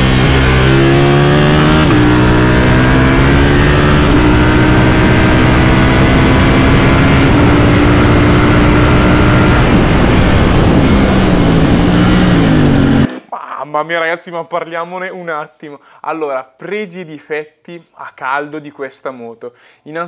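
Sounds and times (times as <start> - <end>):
motorcycle engine accelerating: 0.0 - 13.3.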